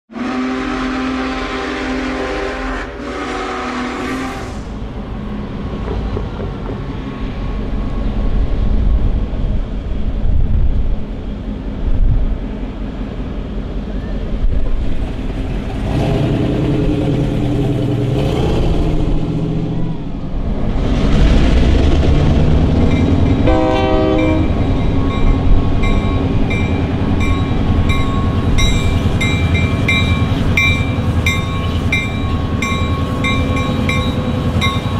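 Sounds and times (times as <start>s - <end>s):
locomotive air horn blasts: 0.1s - 4.8s, 23.4s - 24.8s
diesel locomotive engine rumble: 0.1s - 34.9s
bell ringing: 24.2s - 34.9s.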